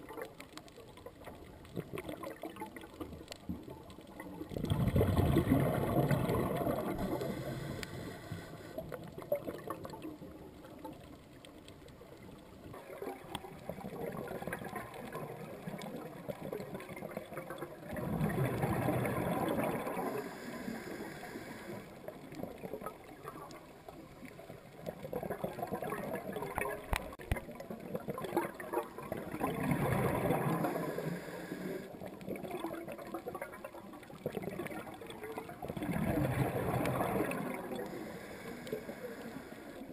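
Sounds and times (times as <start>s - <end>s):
exhaled bubbles underwater: 0.0s - 39.9s
water hiss: 6.2s - 8.8s, 19.5s - 22.0s, 30.0s - 32.0s, 36.9s - 39.9s.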